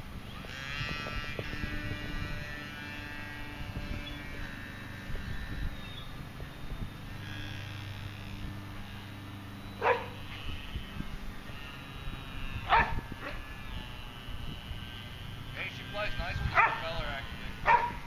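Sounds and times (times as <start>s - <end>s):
small electric motor whine: 0.0s - 18.0s
wind rumble on microphone: 0.0s - 18.0s
dog barking: 9.8s - 10.2s, 12.7s - 13.4s, 16.5s - 16.8s, 17.6s - 18.0s
dog yelp: 9.8s - 10.2s, 12.7s - 13.4s, 16.6s - 16.8s, 17.7s - 18.0s.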